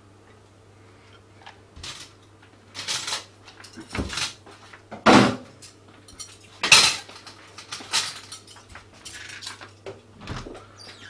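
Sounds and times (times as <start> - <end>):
dishes and utensils clattering: 2.8 - 4.4, 5.2 - 9.7.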